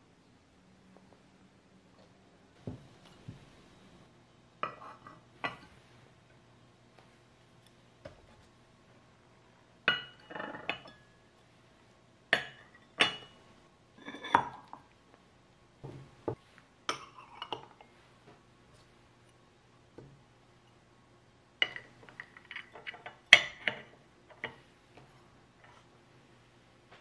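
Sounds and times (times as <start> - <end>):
ceramic dishes clinking: 4.6 - 5.7, 9.8 - 11.2, 12.3 - 13.4, 14.0 - 14.9, 21.6 - 24.6.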